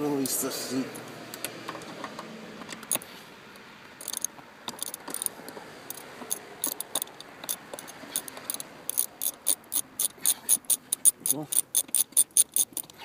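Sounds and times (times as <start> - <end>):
socket ratchet clicking: 2.7 - 3.0, 3.9 - 13.0.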